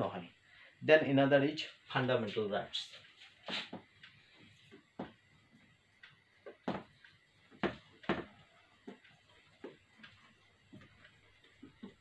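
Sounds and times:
marker on whiteboard: 0:02.9 - 0:05.2.

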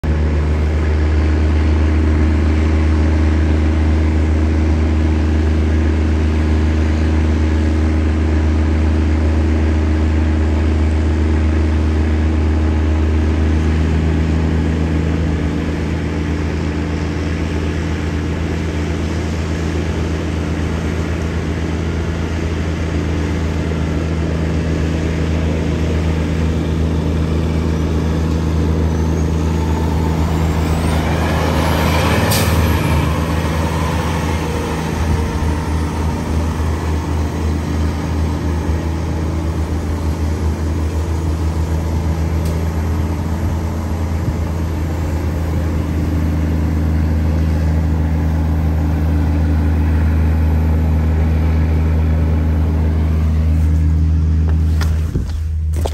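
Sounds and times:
truck diesel engine droning: 0:00.0 - 0:55.9.

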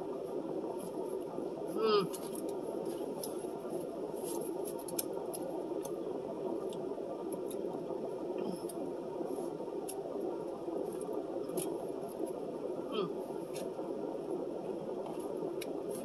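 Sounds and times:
low hum inside car: 0:00.0 - 0:16.0.

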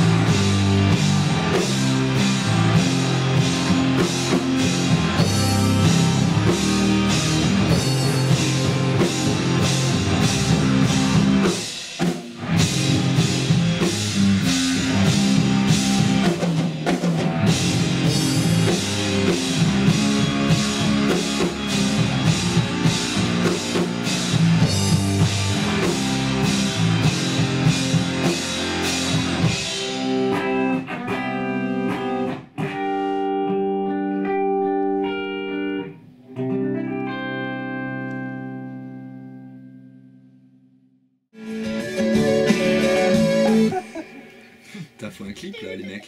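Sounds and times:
rock band playing: 0:00.0 - 0:39.0, 0:41.4 - 0:44.6
electric guitar chords: 0:00.0 - 0:40.5, 0:41.4 - 0:44.7.

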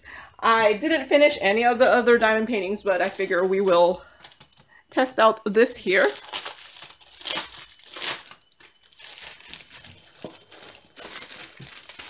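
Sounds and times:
plastic wrap crinkling: 0:02.4 - 0:12.0.

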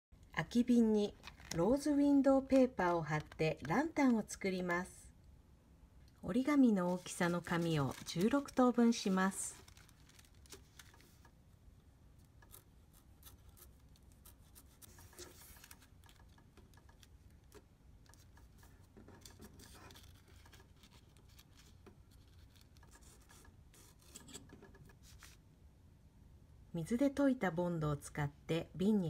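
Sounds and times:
paper rustling and creasing: 0:01.1 - 0:04.2, 0:06.8 - 0:11.3, 0:12.5 - 0:24.3, 0:25.0 - 0:25.4.

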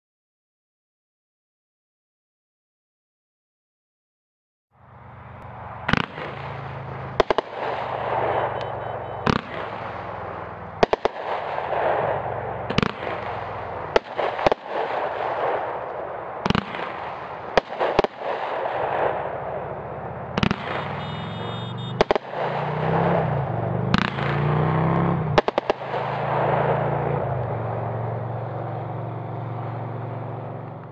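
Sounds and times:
firework bangs: 0:05.6 - 0:28.6
hiss of burning fireworks: 0:06.0 - 0:08.6, 0:09.2 - 0:19.3.

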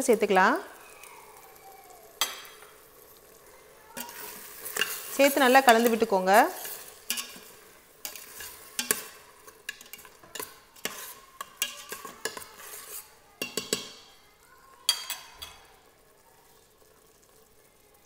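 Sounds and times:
soft sizzle: 0:00.0 - 0:18.0
metal spoon scraping a pot: 0:04.0 - 0:14.1.

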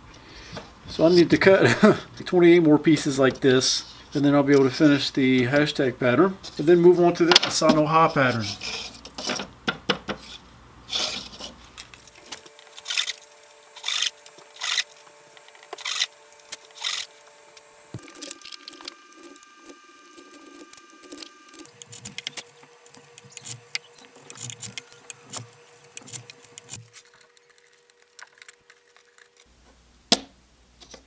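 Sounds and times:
chisel cutting wood: 0:10.1 - 0:29.5.

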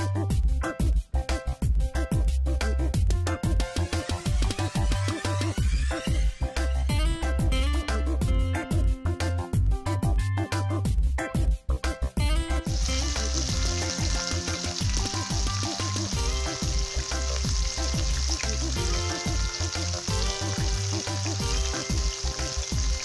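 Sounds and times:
background music: 0:00.0 - 0:23.0
oil bubbling and sizzling: 0:12.6 - 0:23.0.

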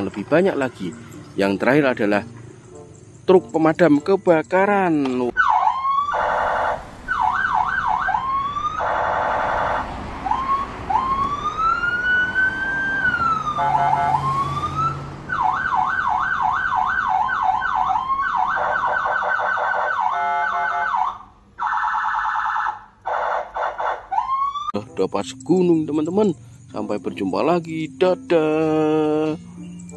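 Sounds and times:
fire engine siren: 0:05.3 - 0:24.8
buzzing horn blasts: 0:06.1 - 0:07.0, 0:08.8 - 0:10.0, 0:13.3 - 0:15.0.

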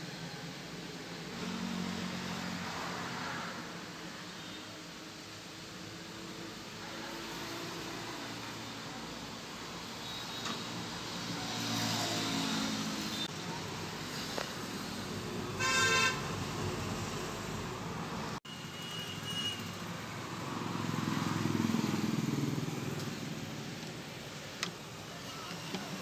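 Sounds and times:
road traffic: 0:00.0 - 0:26.0
vehicle horn tooting: 0:15.6 - 0:16.3
vehicle passing: 0:20.2 - 0:23.6.

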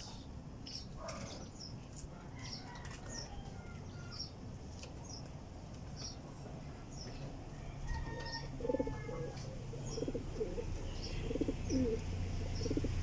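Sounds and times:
small bird chirping: 0:08.2 - 0:13.0.

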